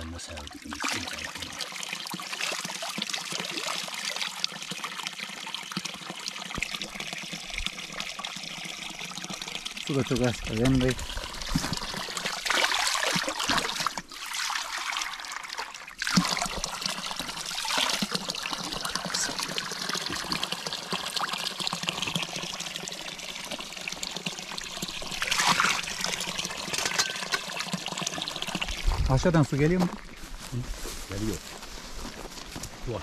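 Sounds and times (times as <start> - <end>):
running water trickling: 0.0 - 33.0.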